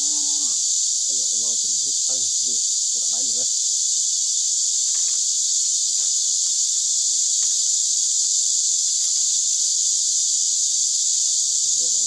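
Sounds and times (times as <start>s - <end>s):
insect chorus drone: 0.0s - 12.0s
bamboo strips clicking and rustling: 4.7s - 7.9s, 8.9s - 9.6s.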